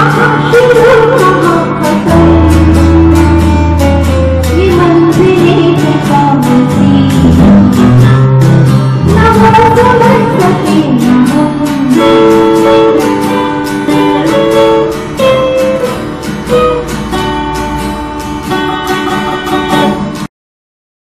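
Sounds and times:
acoustic guitar strumming: 0.0s - 20.3s
electric guitar melody: 0.0s - 20.3s.

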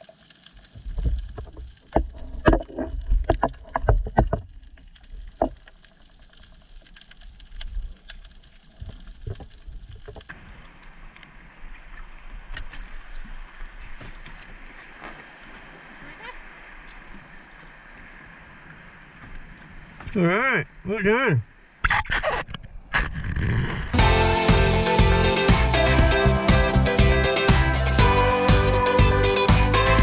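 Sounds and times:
underwater knocks and clicks: 0.6s - 5.8s.

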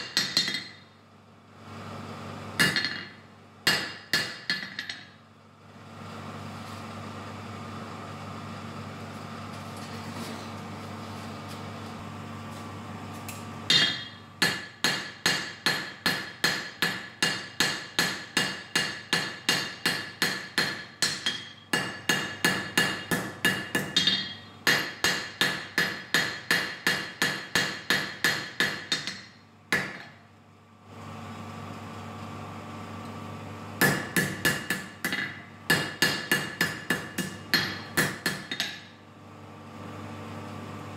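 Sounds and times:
hammer striking steel on anvil: 0.0s - 0.9s, 2.6s - 5.2s, 13.7s - 30.2s, 33.8s - 39.0s
forge air blower humming: 0.0s - 40.9s.

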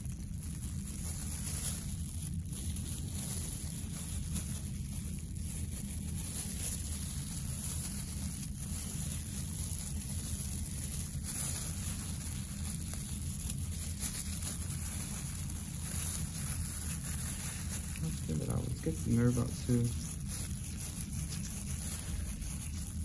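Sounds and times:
low background hum: 0.0s - 23.0s.

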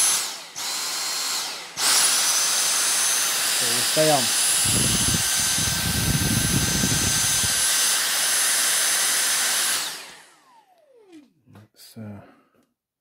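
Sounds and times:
vacuum motor spinning down: 0.0s - 11.3s
cordless vacuum running: 0.0s - 11.4s.

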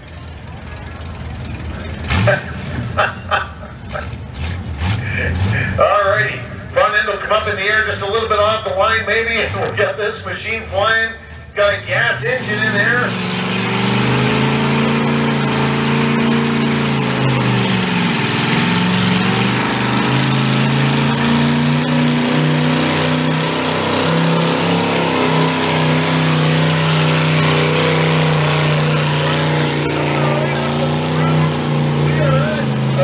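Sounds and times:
tractor engine running under load: 0.0s - 2.1s.

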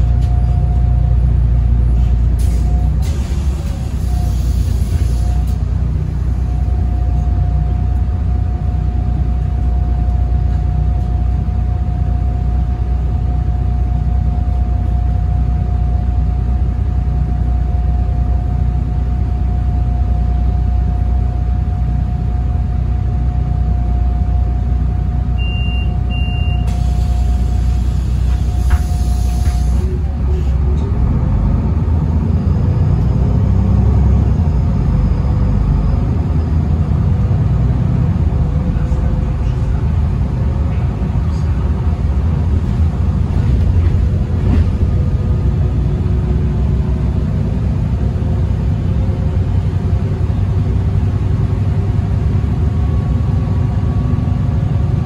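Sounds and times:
bus engine rumble: 0.0s - 55.0s
bus whine: 0.0s - 55.0s
short beeps: 25.4s - 26.7s.

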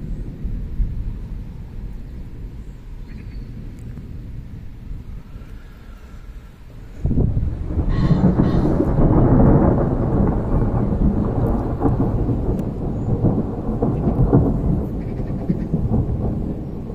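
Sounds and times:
thunder rumbling: 0.0s - 16.9s.

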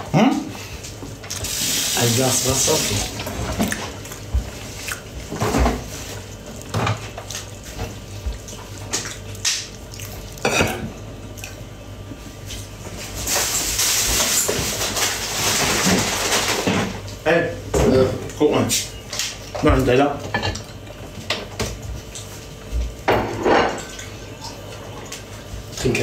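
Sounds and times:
water running: 1.1s - 16.4s
dishes and utensils clattering: 10.4s - 10.9s, 23.1s - 25.0s.

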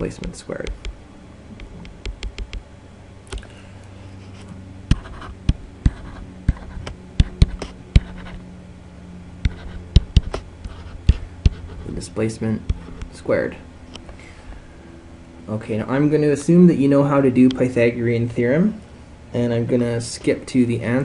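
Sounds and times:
sharp irregular clicks: 0.0s - 1.0s, 1.6s - 2.6s
steady low hum: 0.0s - 21.0s
stylus tapping on tablet: 1.6s - 2.6s, 9.4s - 10.4s.

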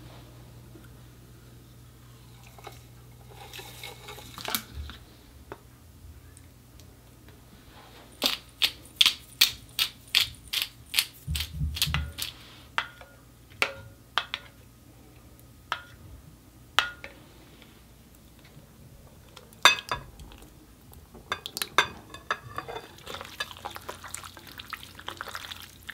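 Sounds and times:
metal spoon clinking glass bowl: 19.7s - 20.1s, 21.3s - 23.6s.

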